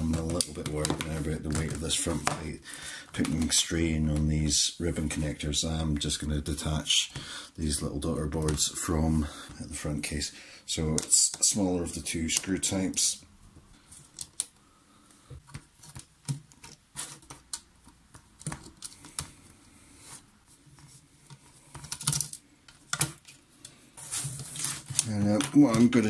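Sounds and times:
circuit boards being handled: 0.0 - 4.3, 13.9 - 14.6, 15.3 - 26.0.

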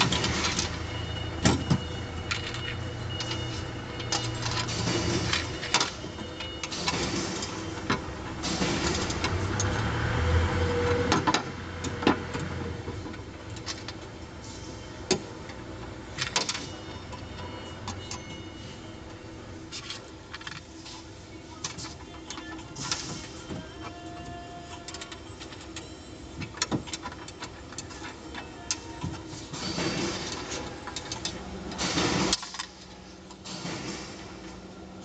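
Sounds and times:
nuts and bolts clinking on steel: 1.5 - 9.8, 21.6 - 34.0
metal clicks and knocks: 24.7 - 29.2.

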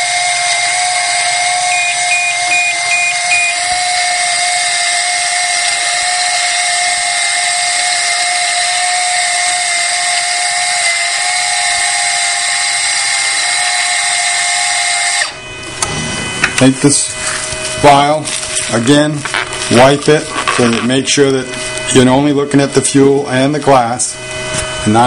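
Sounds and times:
motorized syringe drive whining: 0.0 - 25.0
short instrument beep: 1.7 - 3.7.

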